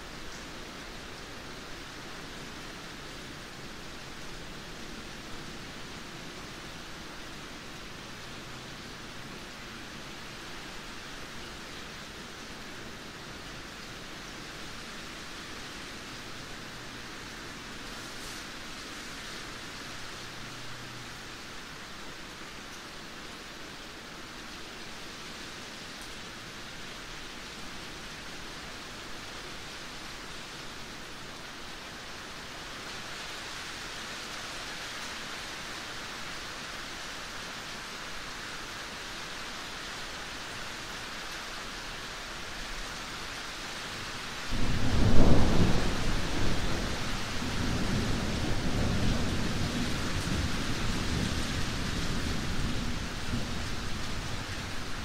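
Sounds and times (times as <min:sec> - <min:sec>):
steady rain falling: 0:00.0 - 0:55.0
thunder clap and rumble: 0:44.5 - 0:54.9.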